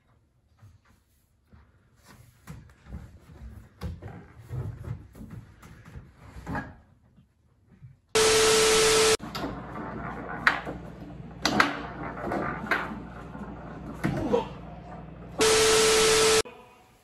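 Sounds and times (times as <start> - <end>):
foosball ball and rods clacking: 9.2 - 14.4.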